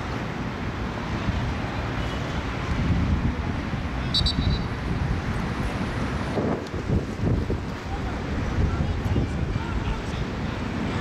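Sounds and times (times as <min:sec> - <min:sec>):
wind buffeting microphone: 0:02.5 - 0:11.0.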